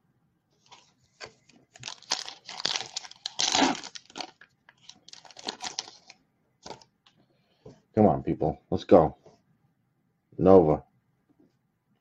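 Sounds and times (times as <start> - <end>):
foil wrapper tearing and crinkling: 0.7 - 6.8.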